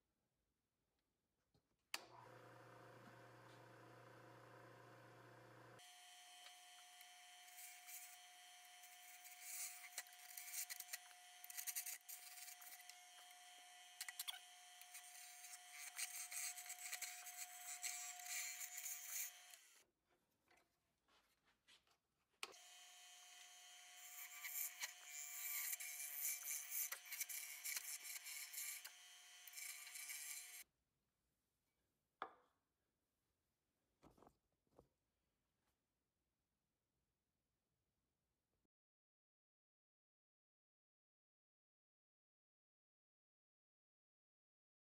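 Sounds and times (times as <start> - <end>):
wood lathe running: 2.1 - 19.8, 22.6 - 30.6
turning tool scraping wood: 7.3 - 19.8, 23.3 - 30.6.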